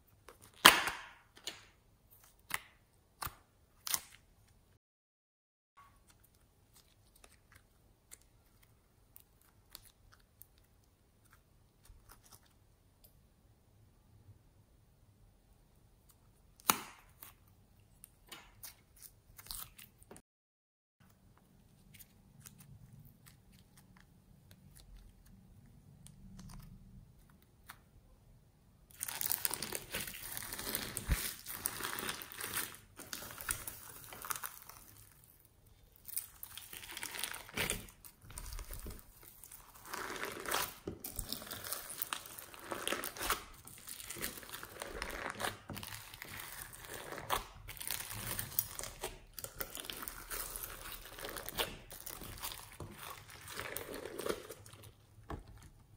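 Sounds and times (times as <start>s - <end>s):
slime clicking and squishing: 28.9s - 35.3s, 35.9s - 55.7s.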